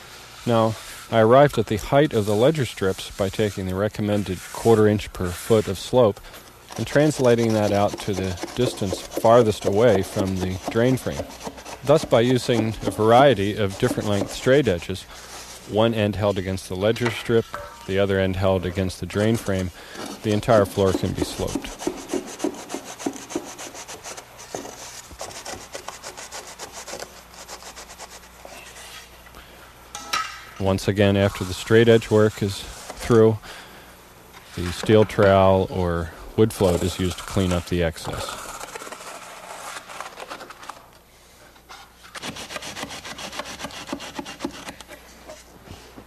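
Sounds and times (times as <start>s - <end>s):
straight edge scraping mortar: 6.7s - 29.1s, 42.1s - 44.9s.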